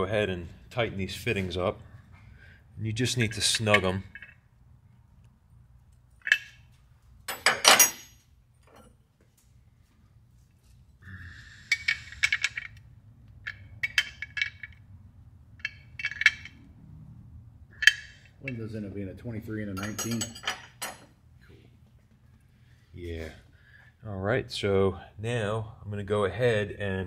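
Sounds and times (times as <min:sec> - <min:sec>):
metal wrench clinking on fittings: 0:06.2 - 0:06.7, 0:07.3 - 0:08.9, 0:13.4 - 0:14.8, 0:15.6 - 0:16.7, 0:17.8 - 0:18.7, 0:19.7 - 0:21.1.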